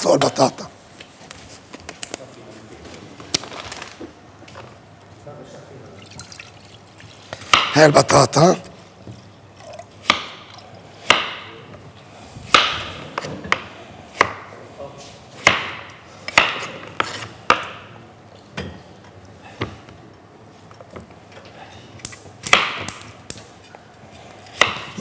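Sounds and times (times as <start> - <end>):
knife chopping on wooden board: 10.0 - 10.4, 11.1 - 11.5, 12.5 - 14.5, 15.4 - 17.8, 22.4 - 23.0, 24.5 - 25.0.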